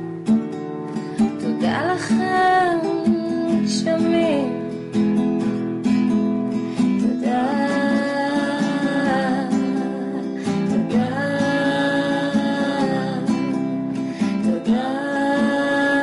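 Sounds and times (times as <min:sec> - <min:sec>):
acoustic guitar strumming chords: 0:00.0 - 0:16.0
person singing: 0:01.3 - 0:04.7, 0:06.8 - 0:16.0.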